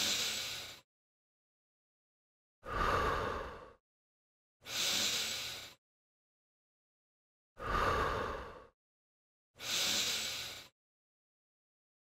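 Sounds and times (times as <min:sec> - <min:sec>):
person breathing in and out: 0:00.0 - 0:00.9, 0:02.6 - 0:03.8, 0:04.6 - 0:05.8, 0:07.6 - 0:08.8, 0:09.6 - 0:10.8.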